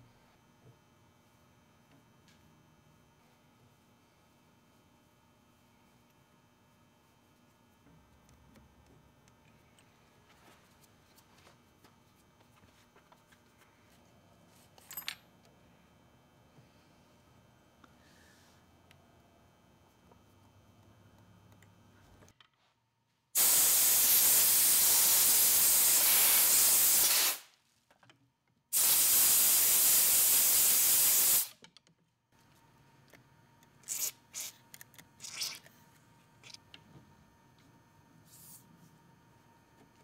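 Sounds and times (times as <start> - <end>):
spray hissing: 23.4 - 27.4, 28.8 - 31.5.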